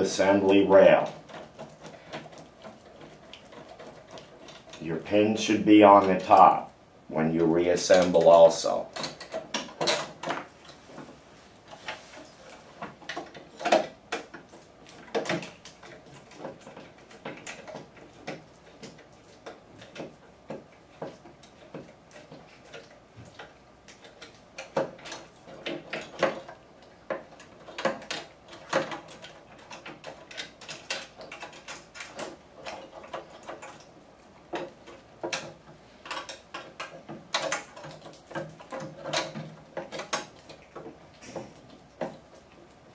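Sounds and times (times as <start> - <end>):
hand tool clicks and metal knocks: 7.8 - 10.8.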